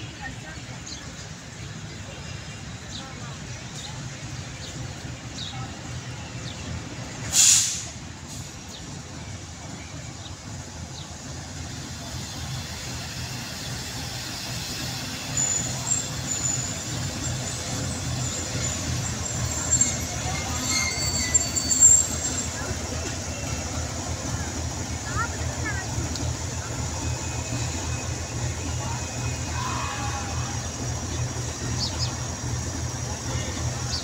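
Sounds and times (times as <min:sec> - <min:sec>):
locomotive engine rumbling: 0:00.0 - 0:34.0
short loud hiss: 0:07.3 - 0:08.5
high-pitched metallic squeals: 0:15.3 - 0:22.7.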